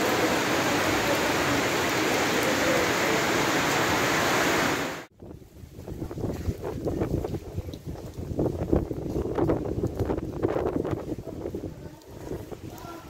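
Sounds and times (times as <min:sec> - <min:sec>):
rain on a metal roof: 0:00.0 - 0:13.0
wind gusts on microphone: 0:02.6 - 0:13.0.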